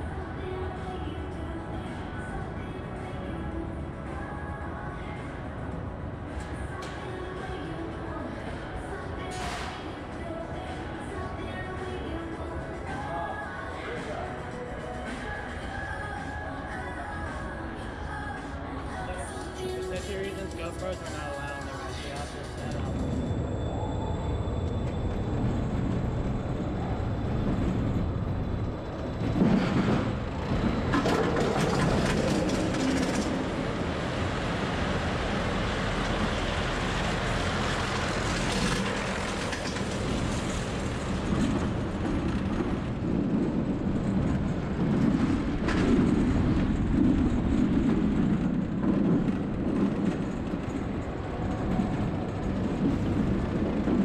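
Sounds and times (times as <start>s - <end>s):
roller coaster wheels rumbling on rails: 0.0s - 54.0s
roller coaster sharp clanks: 28.6s - 54.0s.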